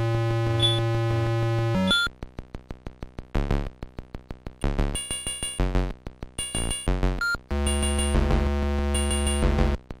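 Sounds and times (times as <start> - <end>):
deep chiptune bass notes: 3.4 - 3.7, 4.6 - 9.8
chiptune drum ticks: 4.6 - 9.8.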